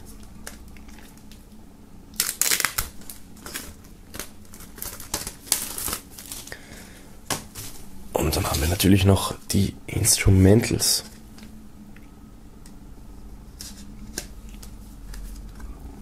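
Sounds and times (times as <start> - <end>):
plastic film crinkling and tearing: 2.1 - 6.6.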